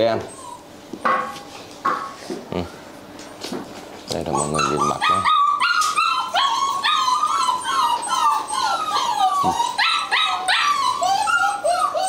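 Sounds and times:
puppies whining and yelping: 0.0s - 1.1s, 4.2s - 12.0s.

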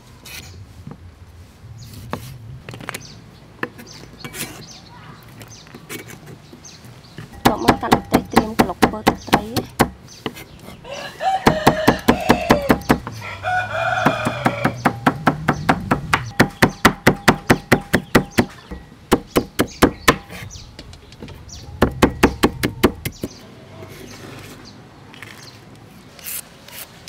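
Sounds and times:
rooster crowing: 10.8s - 15.2s
knife chopping on wooden block: 11.5s - 13.2s.

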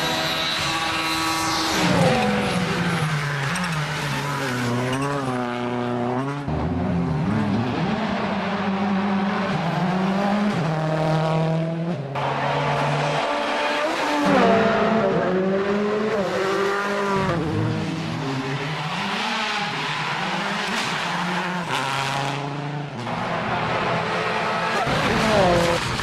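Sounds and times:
rally car engines passing: 0.0s - 26.0s.

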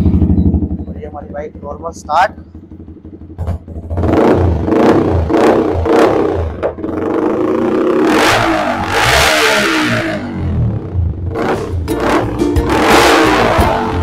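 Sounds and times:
motorcycle engine revving: 0.0s - 14.0s.

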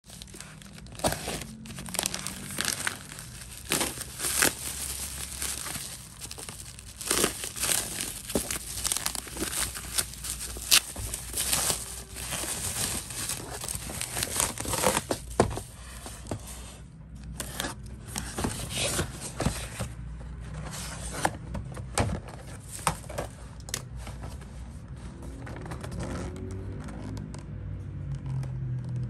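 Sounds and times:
bubble wrap crinkling: 0.0s - 16.0s.

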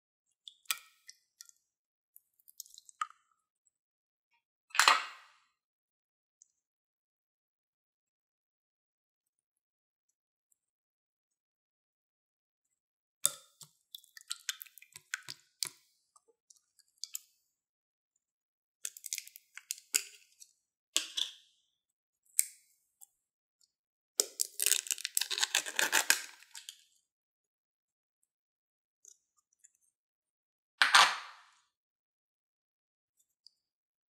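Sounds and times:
slime clicking and crackling: 24.2s - 26.6s.

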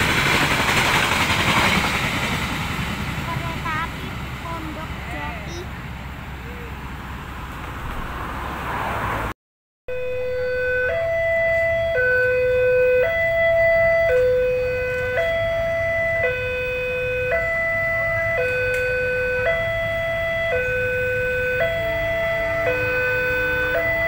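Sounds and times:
rushing noise: 0.0s - 9.3s
low hum of traffic: 1.8s - 24.0s
level crossing alarm tones: 9.9s - 24.0s.

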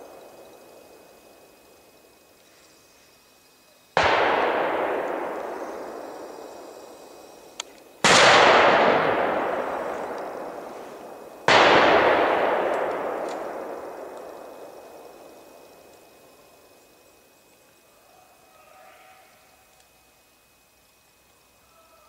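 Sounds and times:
rifle shots echoing: 4.0s - 16.2s.

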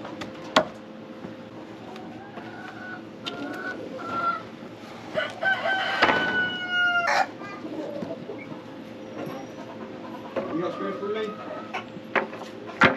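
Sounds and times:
rooster clucking: 1.6s - 12.9s
rooster crowing: 2.0s - 4.5s, 5.1s - 7.4s.

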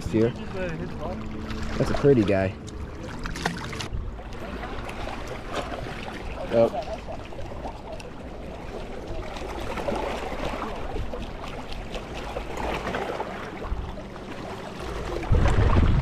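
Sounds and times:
small waves lapping on rocks: 0.0s - 16.0s.

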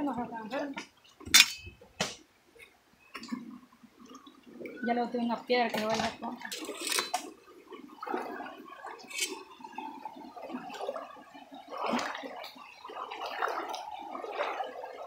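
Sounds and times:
stream splashing over stones: 5.7s - 15.0s.

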